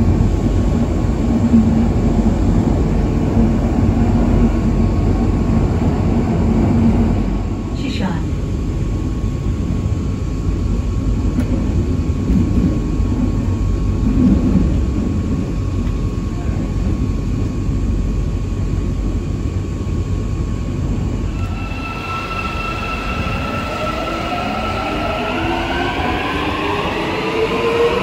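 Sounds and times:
low rumble of train inside: 0:00.0 - 0:28.0
metro traction motors whining: 0:20.6 - 0:28.0.

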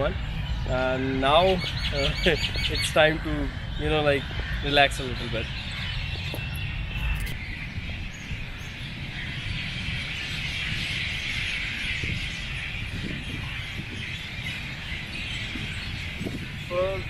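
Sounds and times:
low rumble: 0:00.0 - 0:10.8
many birds chirping: 0:00.0 - 0:17.0.

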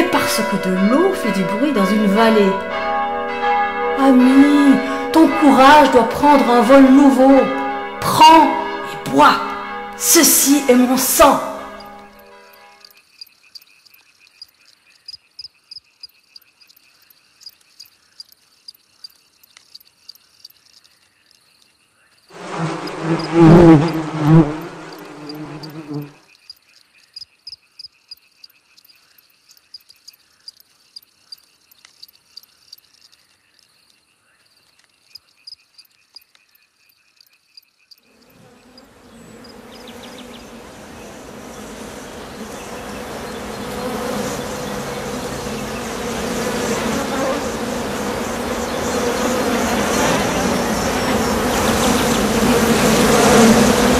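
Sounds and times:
high insect-like chirping: 0:08.6 - 0:53.9
dense buzzing drone: 0:10.7 - 0:12.7, 0:22.4 - 0:26.1, 0:38.8 - 0:53.9.

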